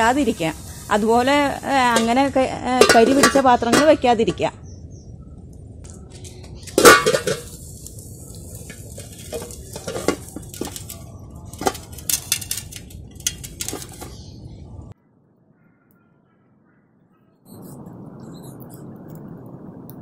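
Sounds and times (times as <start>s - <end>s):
metal vessel clanking: 1.9s - 4.0s, 6.7s - 7.6s, 8.6s - 14.2s.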